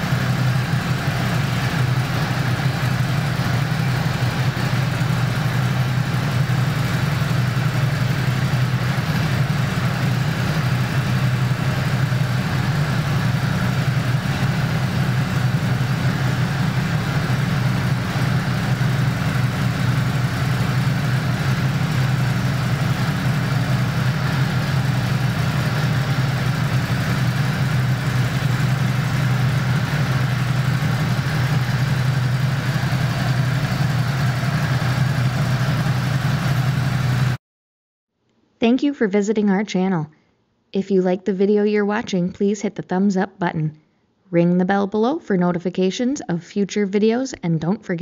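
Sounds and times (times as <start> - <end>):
motorcycle engine idling: 0.0 - 37.4.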